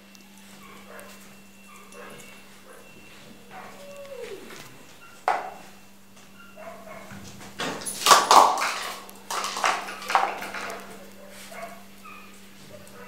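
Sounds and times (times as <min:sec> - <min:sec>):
plastic toy clattering on tiles: 0:07.6 - 0:11.0.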